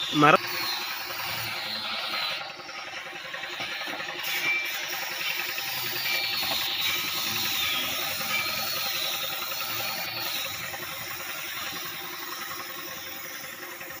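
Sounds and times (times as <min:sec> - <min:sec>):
spray gun hissing: 0:04.0 - 0:14.0.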